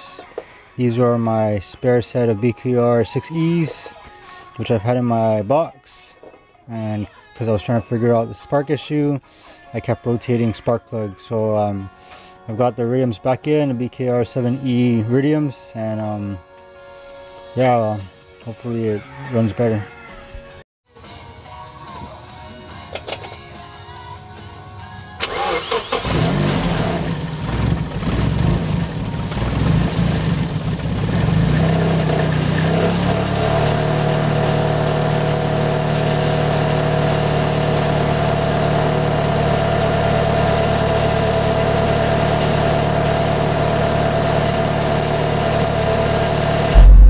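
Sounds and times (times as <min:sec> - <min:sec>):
car engine cranking and idling: 0:25.2 - 0:33.4, 0:34.0 - 0:47.0.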